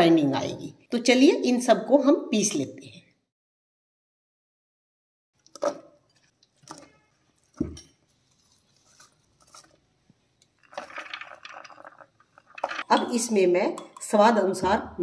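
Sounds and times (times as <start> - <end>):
clatter of bowls: 10.6 - 13.1.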